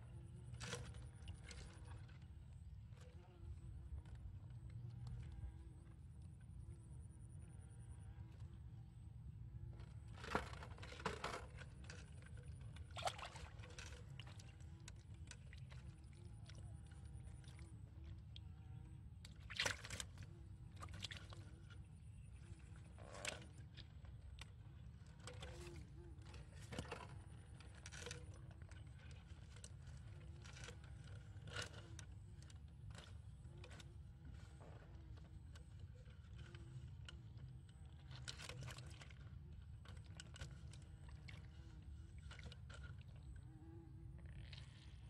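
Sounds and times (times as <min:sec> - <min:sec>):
low steady rumble: 0:00.0 - 0:45.0
small plastic clicks and rustles: 0:23.1 - 0:43.4.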